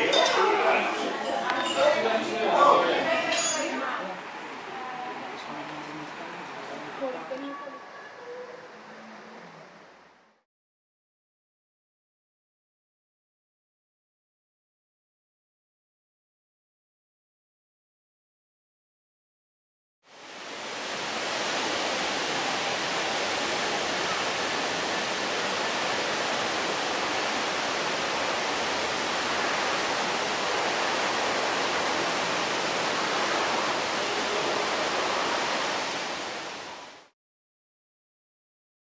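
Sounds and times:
steady rushing noise: 20.1 - 37.1.

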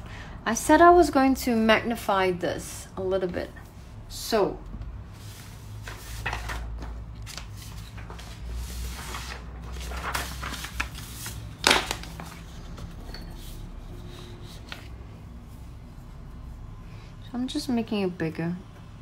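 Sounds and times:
paper sheets rustling: 5.2 - 15.0.

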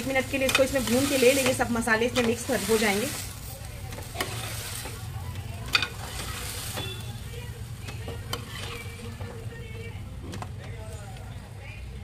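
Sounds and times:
faint sizzle of frying: 0.0 - 12.0
metal spoon scraping rice in pot: 8.3 - 9.3.

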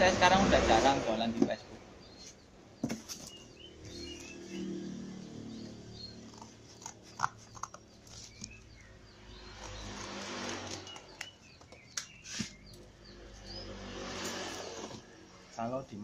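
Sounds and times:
small birds chirping: 1.2 - 16.0
cardboard rustling and scraping: 2.3 - 4.4, 12.2 - 12.6.

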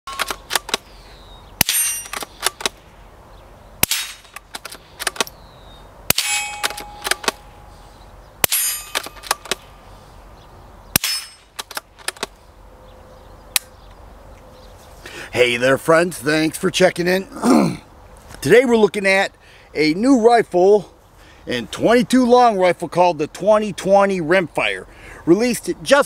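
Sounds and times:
rifle bolt clicks: 0.1 - 0.9, 3.8 - 5.4, 6.2 - 7.4, 8.8 - 9.7, 11.0 - 12.4
metallic target clang: 1.6 - 2.6, 3.8 - 4.4, 6.1 - 7.8, 8.4 - 9.8, 11.0 - 11.7
suppressed rifle shots: 3.8 - 5.4.

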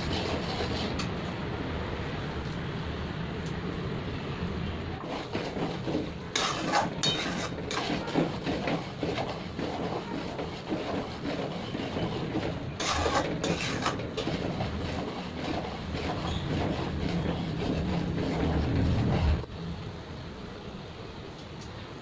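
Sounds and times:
ladle scraping metal pan: 5.0 - 19.4.

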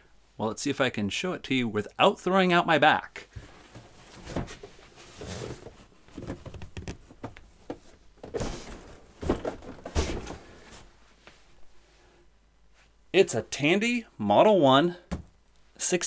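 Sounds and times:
cardboard scraping and rustling: 3.4 - 10.9.

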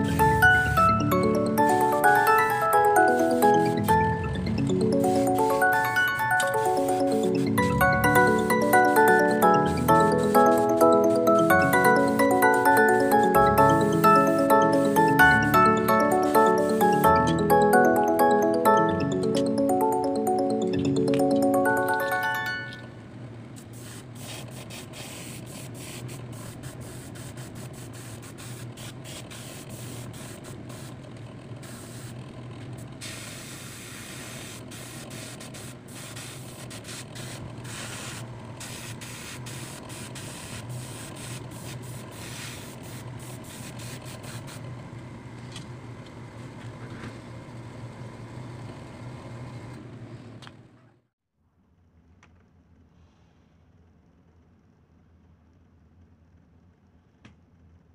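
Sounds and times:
airbrush spraying hiss: 23.6 - 30.9, 31.6 - 32.2, 33.0 - 44.6.

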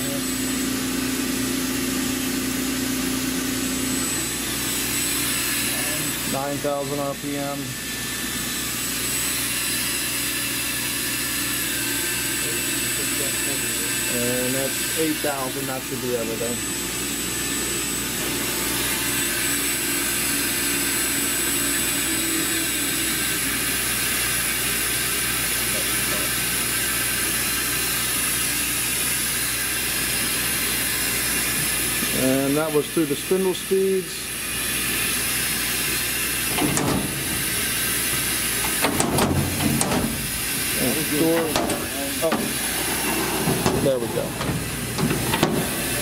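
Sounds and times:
air hissing inside machine: 0.0 - 46.0
grinder spindle high whine: 0.0 - 46.0
machine air hiss: 34.2 - 46.0.

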